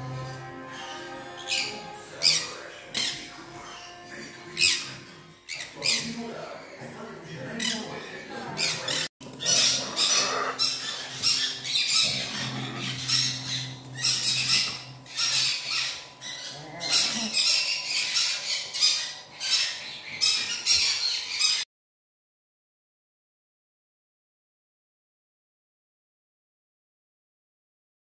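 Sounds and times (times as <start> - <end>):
small parrots squawking: 0.0 - 21.6.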